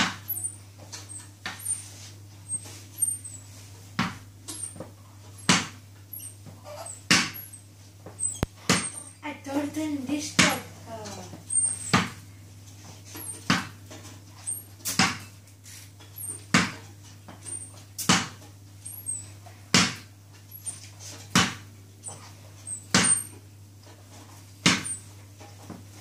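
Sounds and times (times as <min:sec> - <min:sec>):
faint high squeaks: 0:00.3 - 0:03.5, 0:06.1 - 0:07.6, 0:11.0 - 0:12.0.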